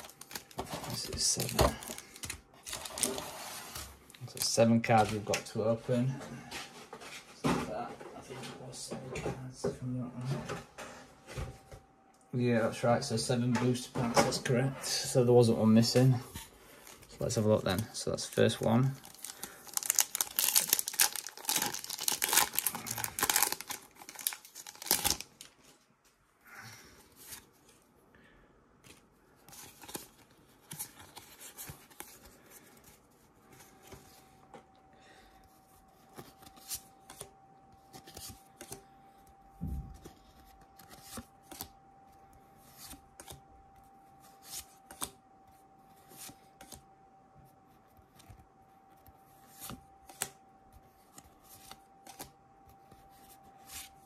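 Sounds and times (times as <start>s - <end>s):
foil wrapper tearing and crinkling: 0.0s - 3.2s, 18.9s - 25.5s.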